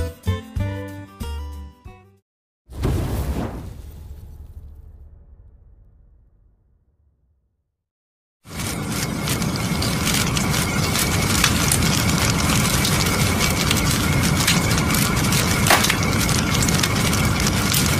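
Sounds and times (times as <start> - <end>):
fire crackling: 8.5 - 17.9.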